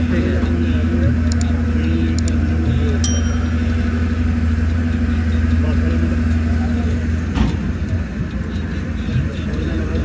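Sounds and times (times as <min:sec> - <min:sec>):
tractor engine idling: 0:00.0 - 0:10.0
bright ding: 0:03.0 - 0:03.9.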